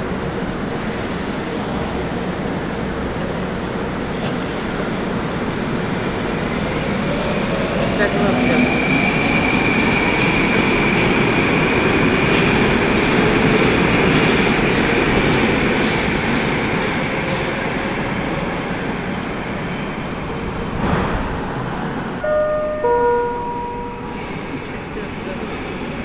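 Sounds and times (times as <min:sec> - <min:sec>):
metro train rumbling away: 0:00.0 - 0:26.0
steady tones: 0:22.2 - 0:25.3.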